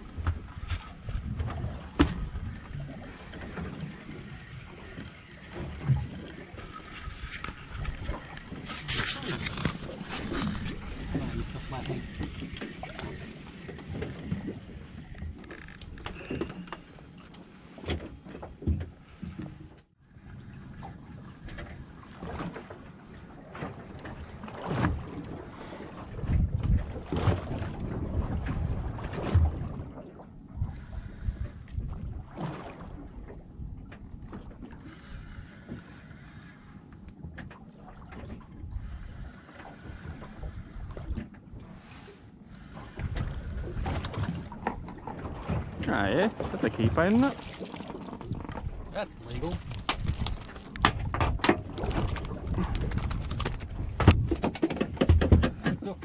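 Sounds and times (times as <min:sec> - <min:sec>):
water slapping boat hull: 0:00.0 - 0:56.0
wind on microphone: 0:26.0 - 0:35.4, 0:48.2 - 0:55.6.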